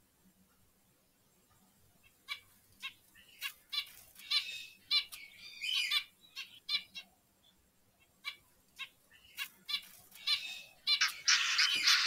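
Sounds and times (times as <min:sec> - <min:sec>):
zebra finches calling: 0:02.0 - 0:07.1, 0:08.0 - 0:12.0.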